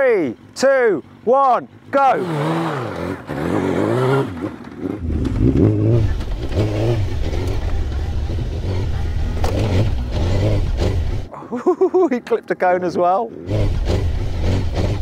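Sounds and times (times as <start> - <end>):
motorcycle engine revving: 1.0 - 11.3, 13.4 - 15.0.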